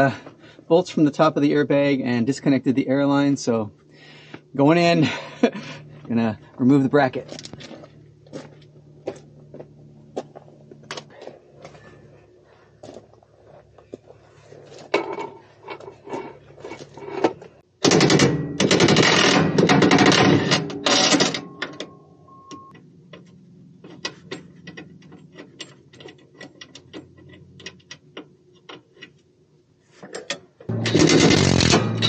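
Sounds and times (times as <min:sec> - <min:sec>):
tool clicking and knocking on metal: 0:23.1 - 0:29.2
impact driver whine: 0:30.7 - 0:32.0.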